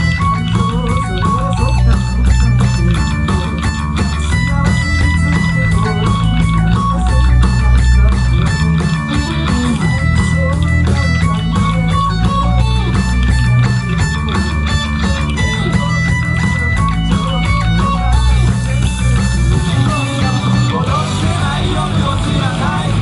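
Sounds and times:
bass guitar: 0.0 - 23.0
electric guitars: 0.0 - 23.0
steady drum beat: 0.0 - 23.0.

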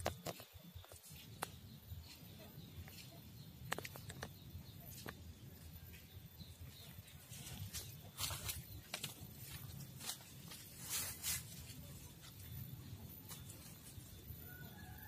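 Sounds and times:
sharp clicks: 3.6 - 4.4.

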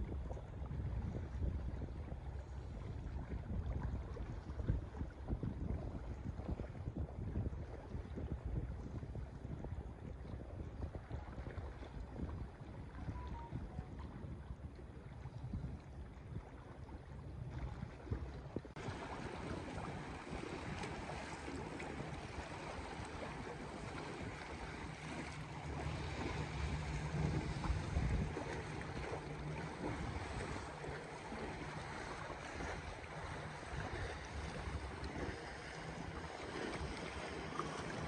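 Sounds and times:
wind buffeting microphone: 0.0 - 38.0
sea waves against rocks: 17.1 - 38.0.

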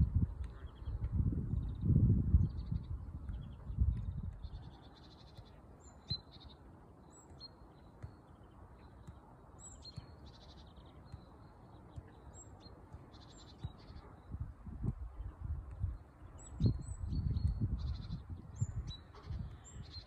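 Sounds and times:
low wind rumble: 0.0 - 4.8, 14.0 - 20.0
small birds chirping: 0.1 - 20.0
football being kicked: 9.9 - 10.3, 11.1 - 11.3.

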